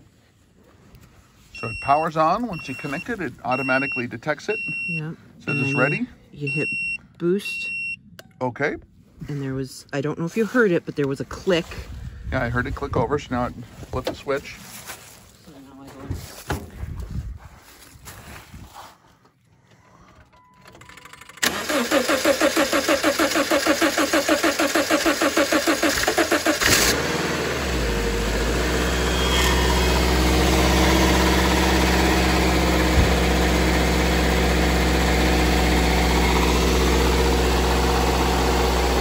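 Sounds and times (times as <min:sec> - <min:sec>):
car starter cranking: 0:20.0 - 0:27.7
car engine idling: 0:21.4 - 0:39.0.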